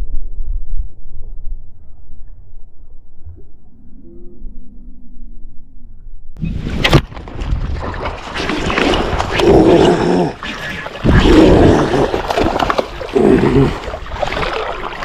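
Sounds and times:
rough vocal outbursts: 8.4s - 13.9s.

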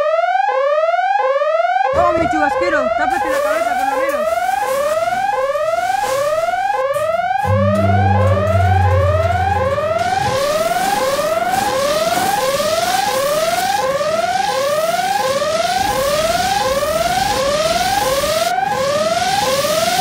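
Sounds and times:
rising whoop warning alarm: 0.0s - 20.0s
spraying water hiss: 3.0s - 7.5s, 8.5s - 20.0s
low hum: 4.7s - 12.5s.

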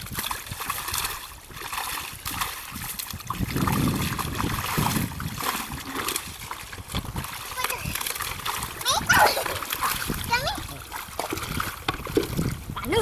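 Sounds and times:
pond water splashing: 0.0s - 13.0s.

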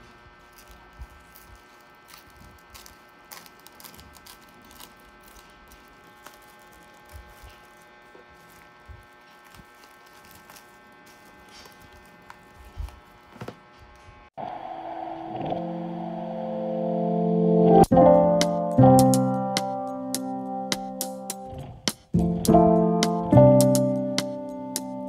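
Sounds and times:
plastic cling wrap crinkling: 0.0s - 13.7s
steady electrical hum: 0.0s - 25.0s.

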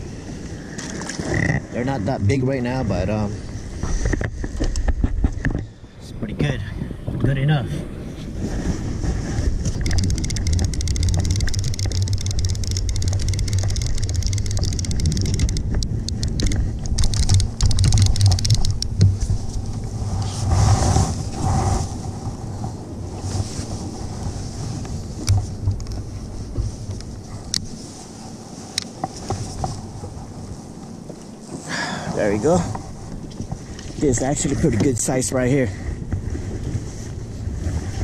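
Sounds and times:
wind buffeting microphone: 0.0s - 28.3s, 32.0s - 38.0s
fishing reel clicking: 9.8s - 18.9s.

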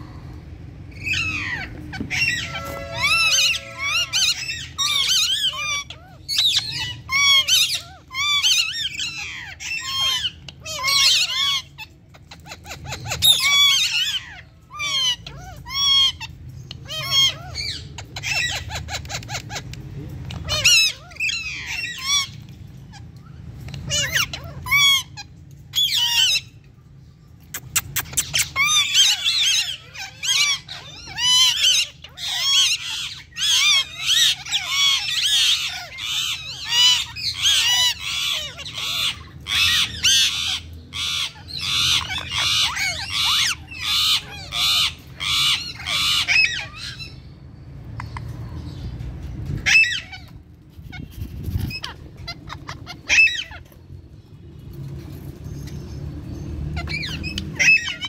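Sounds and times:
parrots squawking and chirping: 0.0s - 58.0s.

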